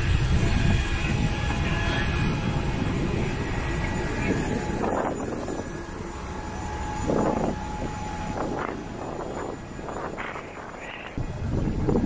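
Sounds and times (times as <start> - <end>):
aircraft low rumble: 0.0 - 12.0
thin steady whine: 0.0 - 12.0.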